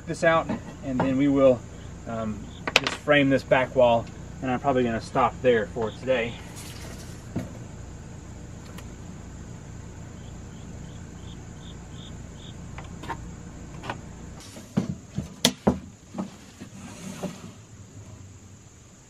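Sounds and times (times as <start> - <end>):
low hum: 0.0 - 14.4
insect chirps: 0.0 - 19.0
tools knocking on wood: 14.8 - 16.4.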